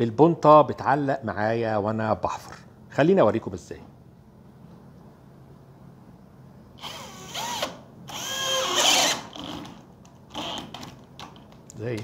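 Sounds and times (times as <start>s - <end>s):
cordless drill boring into wood: 6.8s - 10.9s.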